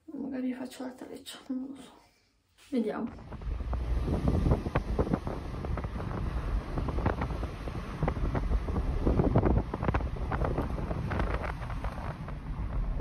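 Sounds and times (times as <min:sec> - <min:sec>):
low rumble: 0:03.1 - 0:13.0
wind buffeting microphone: 0:03.1 - 0:13.0.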